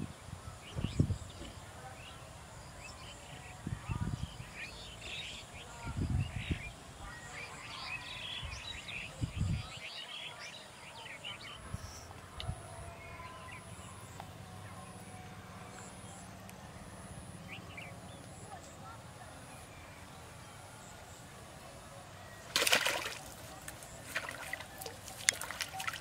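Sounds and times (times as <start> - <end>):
outdoor background noise: 0.0 - 26.0
small birds chirping: 23.0 - 26.0.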